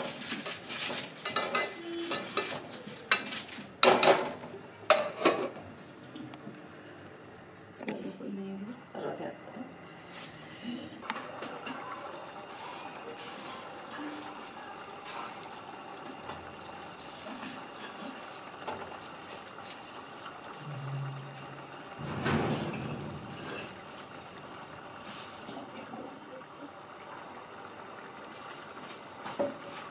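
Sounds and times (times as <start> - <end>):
curry bubbling in a pot: 11.1 - 29.9.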